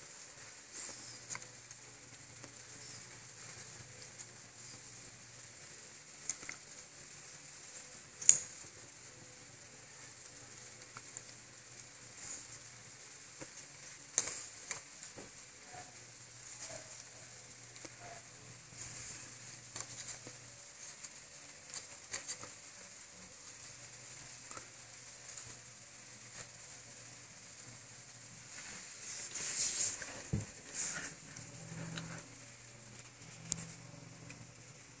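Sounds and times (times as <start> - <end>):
background hiss: 0.0 - 35.0
plastic toys tapping and rustling: 13.4 - 15.4, 18.8 - 22.6.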